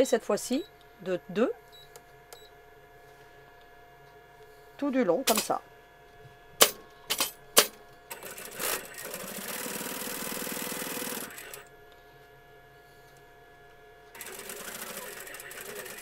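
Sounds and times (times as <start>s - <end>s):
sewing machine stitching: 8.1s - 11.6s, 14.2s - 16.0s.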